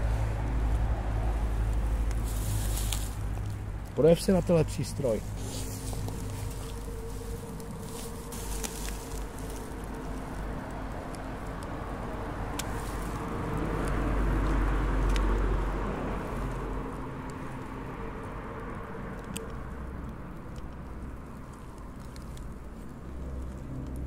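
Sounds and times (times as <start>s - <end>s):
steady low hum: 0.0s - 14.6s
passing vehicle: 0.0s - 24.0s.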